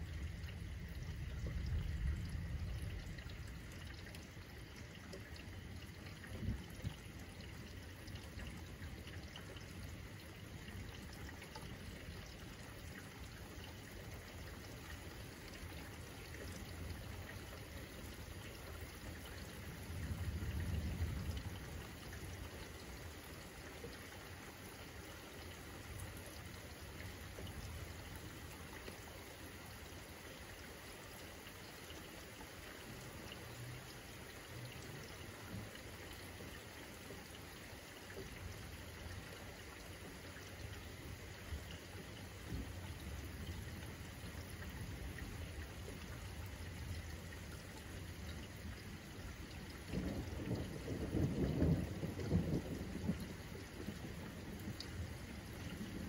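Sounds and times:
low thunder rumbling: 0:00.0 - 0:04.4, 0:19.6 - 0:21.9, 0:49.8 - 0:56.0
steady rain falling: 0:00.0 - 0:56.0.

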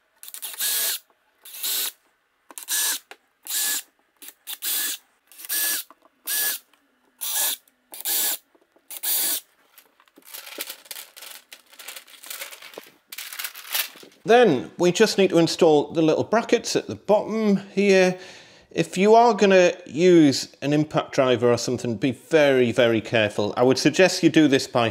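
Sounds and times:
cordless drill spinning up: 0:00.2 - 0:02.0, 0:02.6 - 0:03.8, 0:04.4 - 0:06.6, 0:07.2 - 0:09.4
paper rustling and crinkling: 0:09.6 - 0:14.2.

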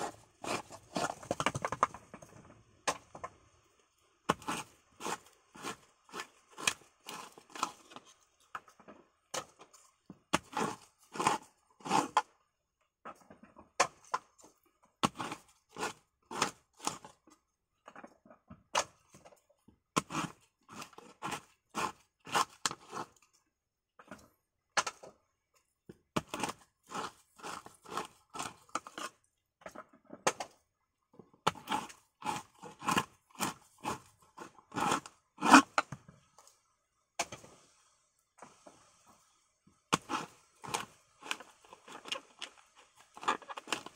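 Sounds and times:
knife prying coconut meat: 0:00.0 - 0:01.3, 0:04.3 - 0:08.2, 0:39.9 - 0:43.9.

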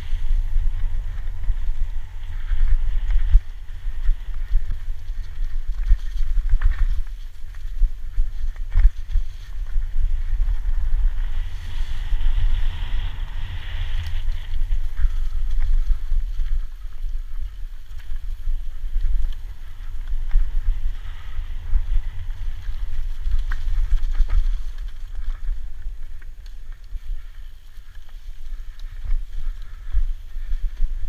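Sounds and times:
bike tyre noise: 0:00.0 - 0:31.0
wind buffeting microphone: 0:00.0 - 0:31.0
bike knocking and rattling: 0:02.2 - 0:10.8.

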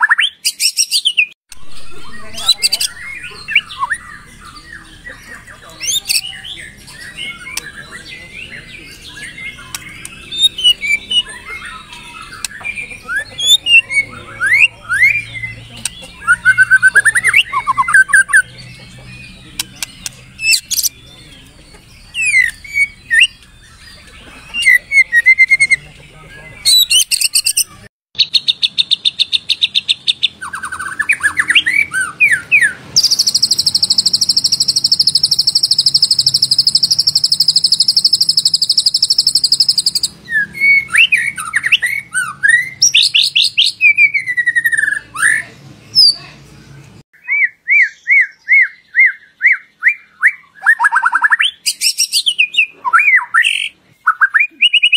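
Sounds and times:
bird song with whistled phrases: 0:00.0 - 0:46.3, 0:47.2 - 0:54.9
high rattling bird trill: 0:26.7 - 0:44.9.

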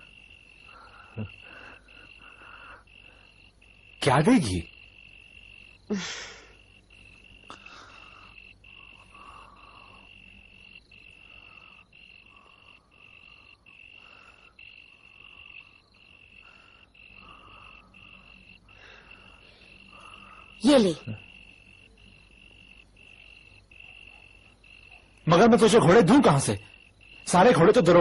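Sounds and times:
frogs croaking: 0:00.0 - 0:28.0
high cricket trill: 0:00.0 - 0:28.0.

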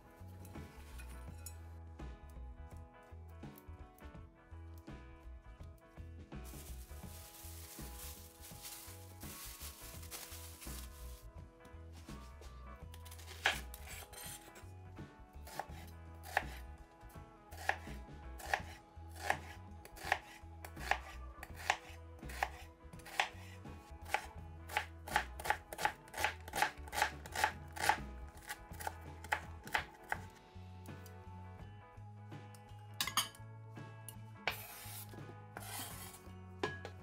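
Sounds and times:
knife chopping on wooden board: 0:13.2 - 0:14.4, 0:15.5 - 0:16.6, 0:17.6 - 0:23.4, 0:24.0 - 0:30.3, 0:34.5 - 0:36.1.

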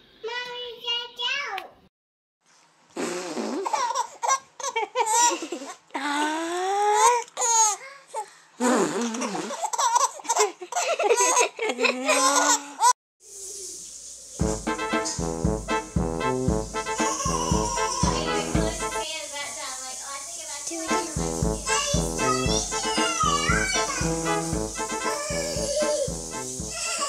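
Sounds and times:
baby laughing and squealing: 0:25.1 - 0:26.1, 0:26.7 - 0:27.0.

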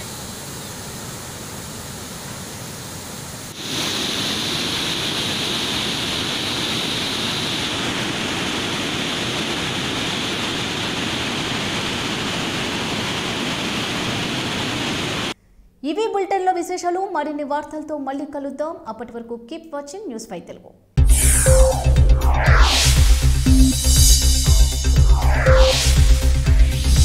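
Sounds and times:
water rushing through spillway: 0:00.0 - 0:15.4.

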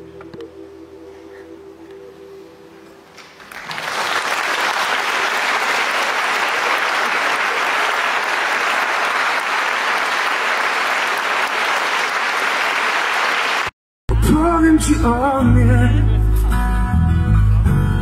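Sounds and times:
audience applauding: 0:03.2 - 0:13.7.

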